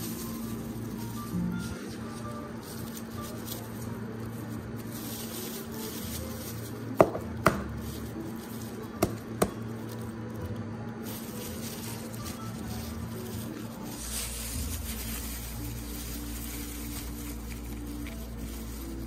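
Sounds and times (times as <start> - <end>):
egg shell tapping and cracking: 7.0 - 7.8.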